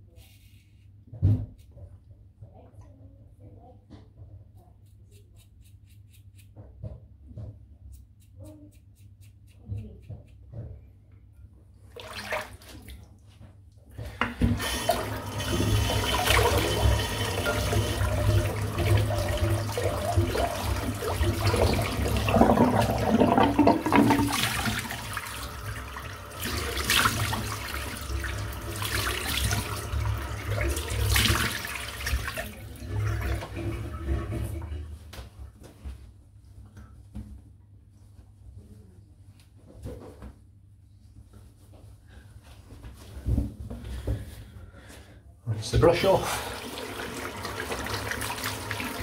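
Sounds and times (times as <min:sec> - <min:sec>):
tap running into a sink: 0:14.0 - 0:32.4.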